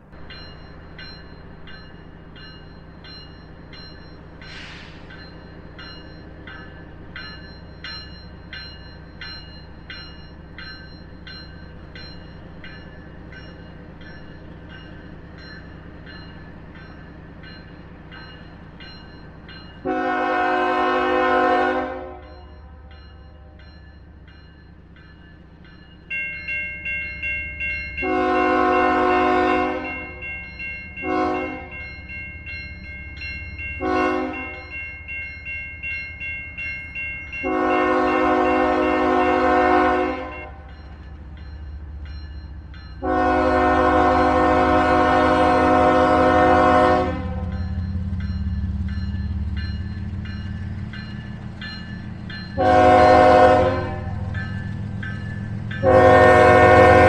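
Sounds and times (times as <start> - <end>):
locomotive air horn blasts: 19.8 - 22.4, 28.0 - 29.9, 31.0 - 31.7, 33.8 - 34.6, 37.4 - 40.5, 43.0 - 47.5, 52.6 - 54.2, 55.8 - 57.0
bell ringing: 22.3 - 29.0, 29.8 - 39.0.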